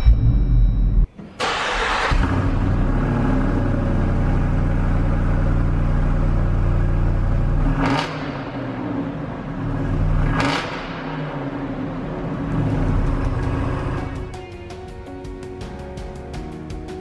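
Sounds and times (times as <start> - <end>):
car engine idling and revving: 1.4 - 14.3.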